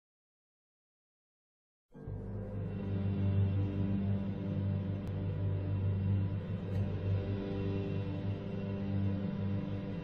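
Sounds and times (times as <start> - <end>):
background music: 1.9 - 10.0.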